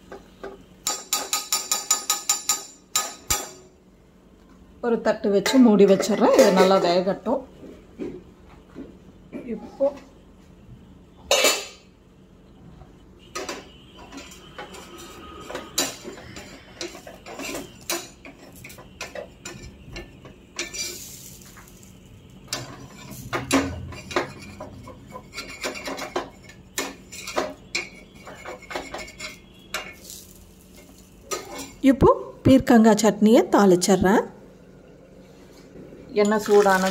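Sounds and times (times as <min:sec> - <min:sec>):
metal utensils clinking on pan: 0:00.8 - 0:03.7, 0:05.4 - 0:07.0, 0:11.3 - 0:11.8, 0:13.4 - 0:21.9, 0:22.5 - 0:31.8.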